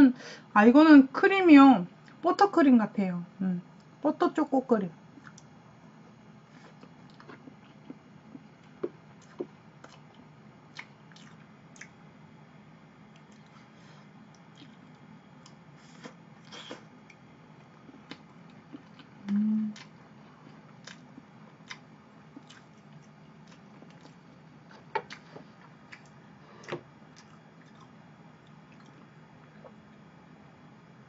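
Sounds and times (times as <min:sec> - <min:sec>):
lip smacks and mouth clicks: 0:05.2 - 0:05.5, 0:08.6 - 0:12.0, 0:13.1 - 0:13.5, 0:14.3 - 0:17.2, 0:20.8 - 0:29.8
person chewing: 0:06.5 - 0:12.0, 0:13.1 - 0:30.0
person humming: 0:19.2 - 0:19.9.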